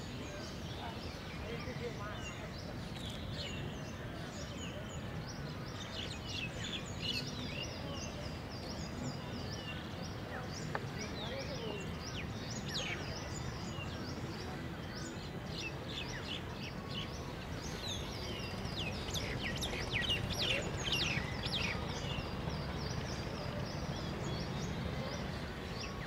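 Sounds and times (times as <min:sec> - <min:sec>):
small birds chirping: 0:00.0 - 0:26.0.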